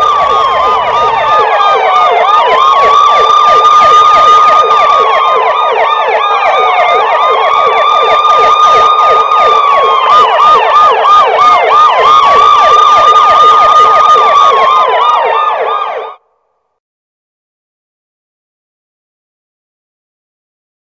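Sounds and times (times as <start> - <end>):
electronic siren yelp and wail: 0.0 - 16.2.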